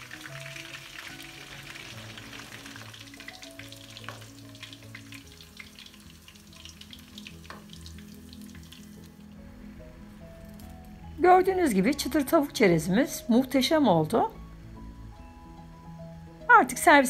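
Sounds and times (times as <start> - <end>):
chicken frying in oil: 0.0 - 9.2.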